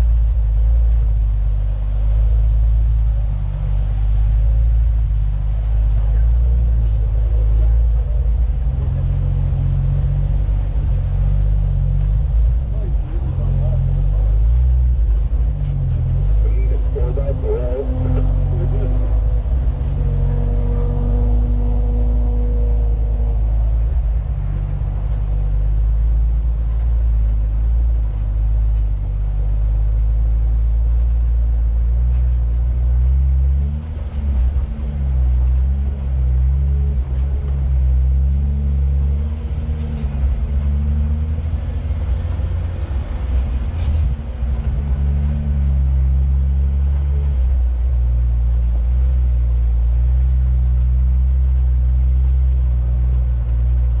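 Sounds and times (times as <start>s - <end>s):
off-road vehicle engine revving: 0.0s - 54.0s.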